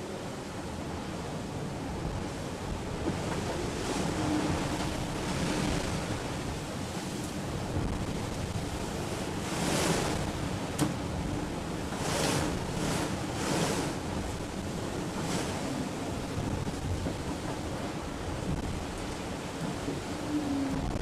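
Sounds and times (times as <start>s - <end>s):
water rushing past hull: 0.0s - 21.0s.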